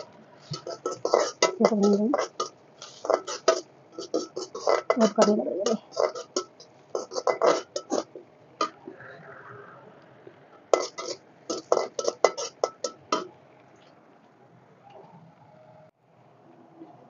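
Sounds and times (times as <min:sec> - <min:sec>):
steel spatula scraping a pan: 0:00.0 - 0:08.9, 0:10.7 - 0:13.3.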